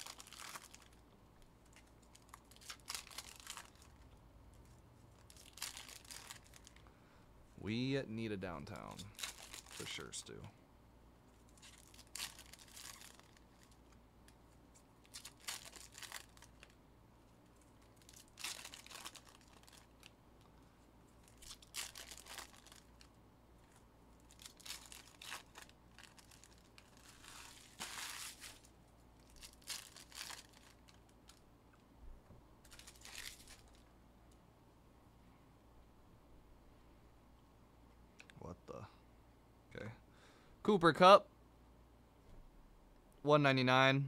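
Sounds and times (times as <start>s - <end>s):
foil wrappers tearing and crinkling: 0.0s - 1.0s, 1.6s - 4.0s, 5.2s - 6.8s, 8.8s - 10.2s, 11.5s - 14.0s, 15.0s - 16.8s, 17.9s - 20.1s, 21.2s - 23.1s, 24.2s - 31.4s, 32.7s - 33.8s.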